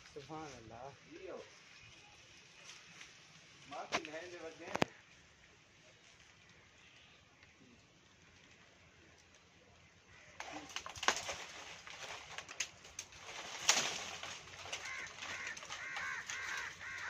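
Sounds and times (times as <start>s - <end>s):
sharp clicks and crackles: 10.4s - 17.0s
bird calling: 14.6s - 17.0s.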